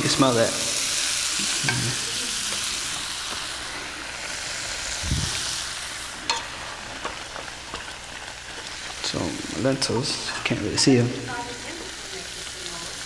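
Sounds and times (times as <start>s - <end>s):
tomatoes sizzling in frying pan: 0.0s - 13.0s.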